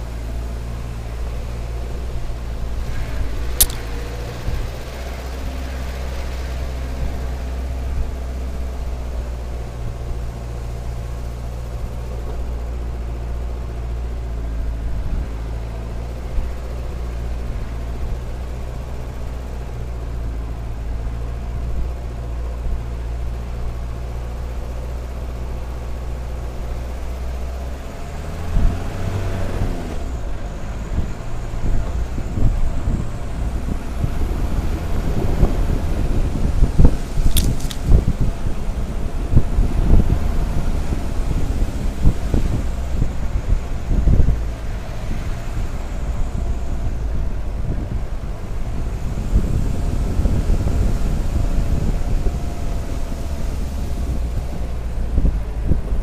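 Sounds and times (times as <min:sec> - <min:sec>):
car engine under load: 0:00.0 - 0:56.0
vehicle knocking over ruts: 0:28.5 - 0:56.0.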